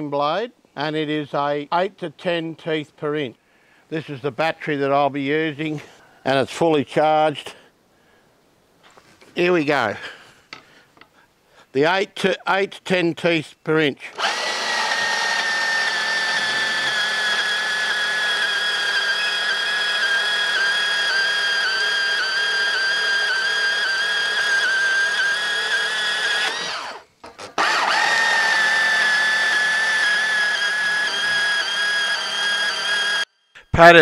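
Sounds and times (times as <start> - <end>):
bandsaw cutting metal: 14.1 - 33.3.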